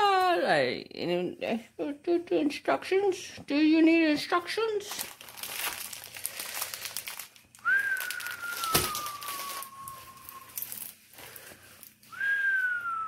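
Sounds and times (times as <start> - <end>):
plastic crinkling: 4.5 - 12.8.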